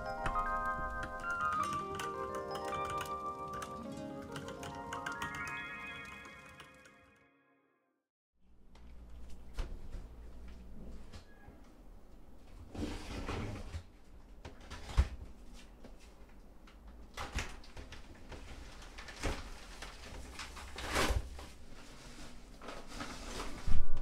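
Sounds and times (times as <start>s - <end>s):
plastic and paper crinkling: 17.6s - 23.7s.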